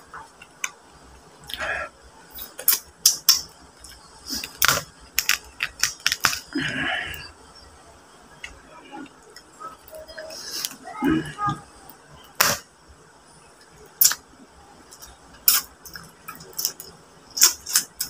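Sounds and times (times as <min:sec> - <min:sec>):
crab shell cracking: 0:02.4 - 0:06.5.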